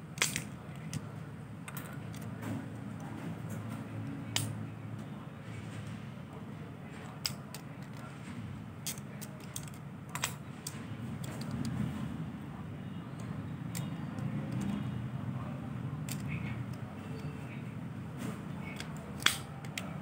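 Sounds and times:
plastic parts clicking: 0:00.1 - 0:01.1, 0:01.7 - 0:02.4, 0:04.2 - 0:04.6, 0:07.1 - 0:08.1, 0:08.8 - 0:11.8, 0:13.2 - 0:14.8, 0:16.0 - 0:17.3, 0:18.6 - 0:20.0.

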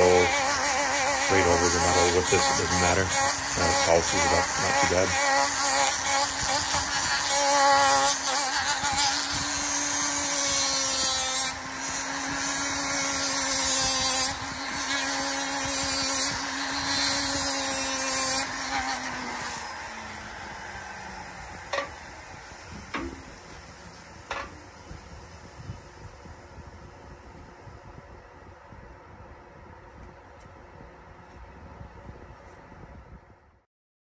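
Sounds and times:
sandpaper hissing on wood: 0:00.0 - 0:19.9
rotary sanding tool running: 0:00.0 - 0:28.8.

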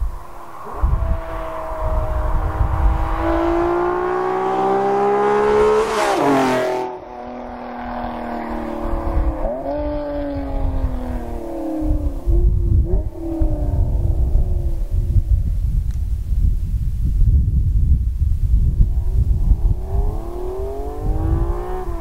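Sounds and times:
car accelerating past: 0:00.0 - 0:14.0, 0:18.9 - 0:22.0.

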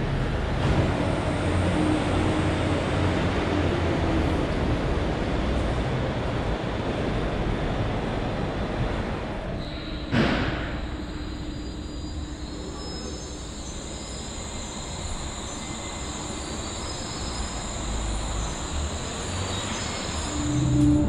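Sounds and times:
suspended train rumble: 0:00.0 - 0:21.0
faint steady tones: 0:09.6 - 0:21.0.

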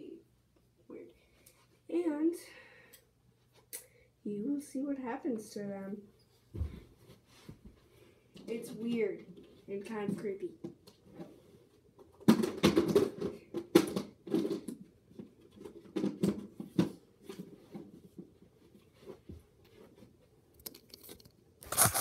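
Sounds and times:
scratchy rustling: 0:21.6 - 0:22.0.

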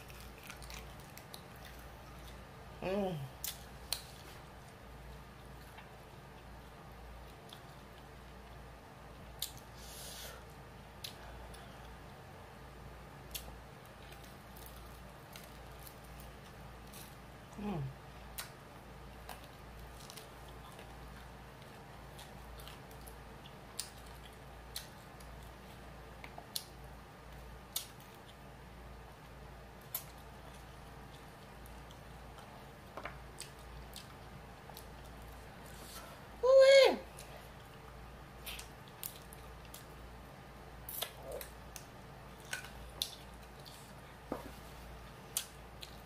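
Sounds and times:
chewing sounds: 0:00.0 - 0:02.4, 0:03.4 - 0:08.6, 0:29.2 - 0:36.0, 0:37.2 - 0:40.0, 0:40.9 - 0:44.2.

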